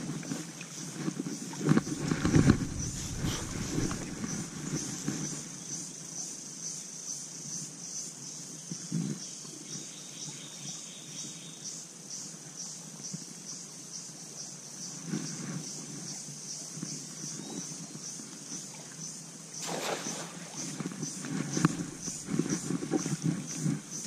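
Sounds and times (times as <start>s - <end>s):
insects chirping: 0.8s - 8.5s, 16.9s - 24.0s
low rumble: 1.9s - 4.9s.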